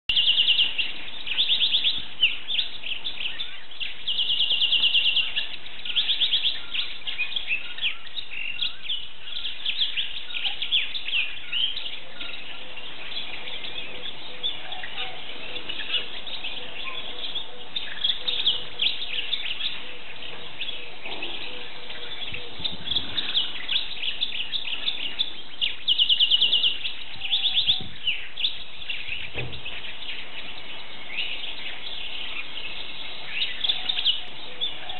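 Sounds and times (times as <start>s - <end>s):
canary singing with trills: 0.1s - 34.9s.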